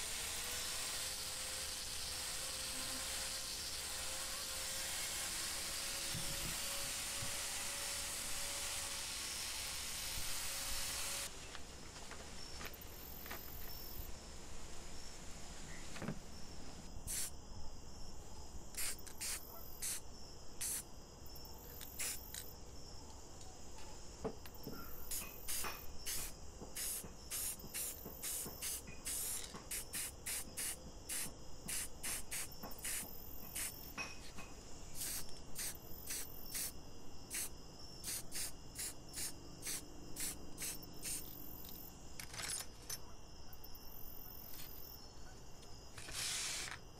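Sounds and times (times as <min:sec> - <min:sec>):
rotary tool running: 0:00.0 - 0:11.3, 0:25.1 - 0:33.9, 0:37.3 - 0:41.8, 0:45.9 - 0:46.8
spray paint can hissing: 0:17.1 - 0:17.3, 0:18.8 - 0:20.0, 0:20.6 - 0:20.9, 0:21.8 - 0:22.5, 0:25.1 - 0:33.9, 0:35.0 - 0:41.7, 0:46.0 - 0:46.8.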